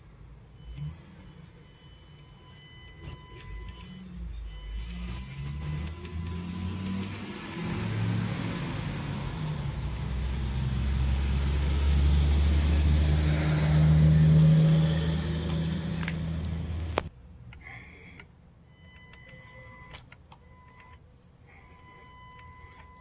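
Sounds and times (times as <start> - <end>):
electric motor and drivetrain whirring: 0.6 - 17.1.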